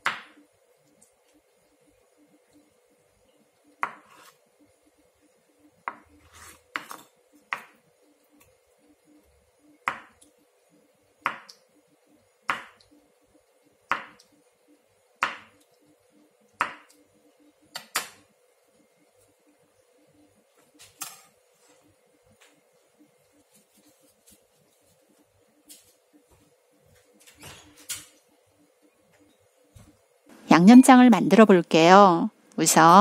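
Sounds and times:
knife cutting on wooden board: 3.8s - 4.4s.

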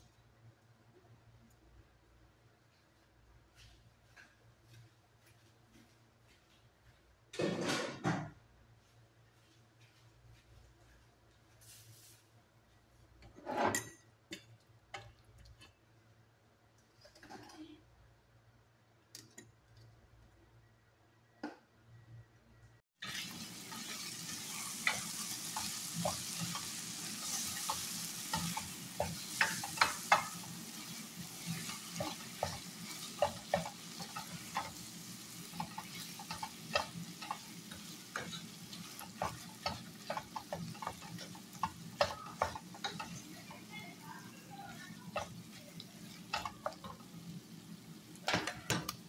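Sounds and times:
chicken sizzling in frying pan: 23.0s - 49.0s
spatula scraping pan: 23.1s - 47.4s.

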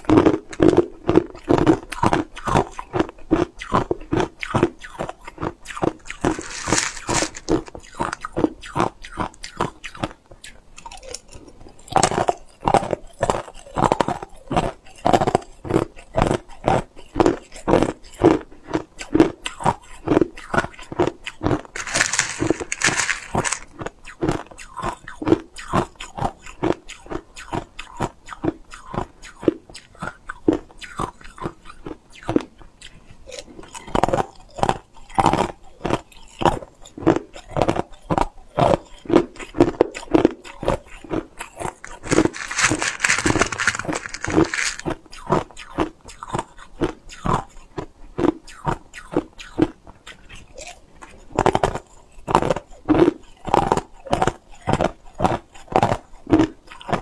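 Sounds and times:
ice cubes being crunched: 5.8s - 8.4s, 21.6s - 23.8s, 41.6s - 45.0s.

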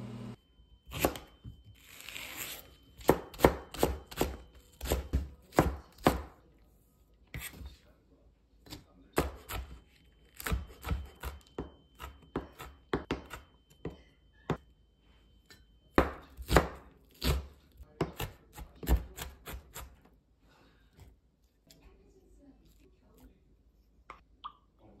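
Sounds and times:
knife chopping on cutting board: 0.9s - 1.3s, 3.0s - 6.4s, 8.7s - 9.8s, 10.4s - 14.6s, 15.9s - 20.0s.

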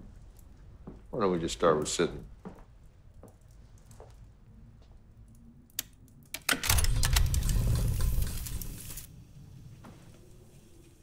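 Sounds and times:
loud mechanical rattling clatter: 6.6s - 8.8s.

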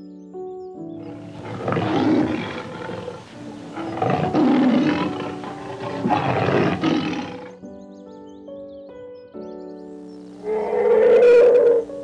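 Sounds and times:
background music: 0.0s - 12.0s
large animal rough calls: 1.0s - 7.6s.

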